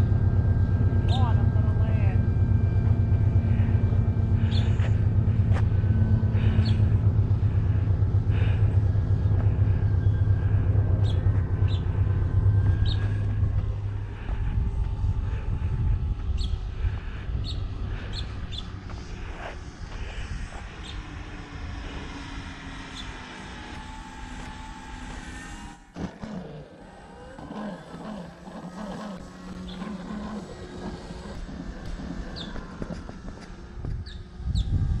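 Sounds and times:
distant model plane motors whining: 0.0s - 35.0s
wind buffeting microphone: 3.0s - 22.4s, 30.6s - 35.0s.

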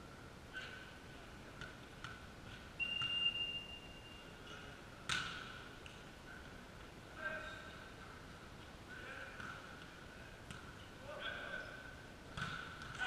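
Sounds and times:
referee's whistle blast: 2.8s - 4.2s
volleyball smack echoing: 5.1s - 5.6s, 12.3s - 13.0s.

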